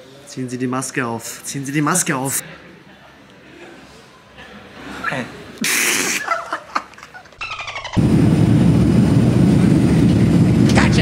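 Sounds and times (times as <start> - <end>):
short hiss: 5.6 - 6.2
airliner cabin rumble: 8.0 - 11.0.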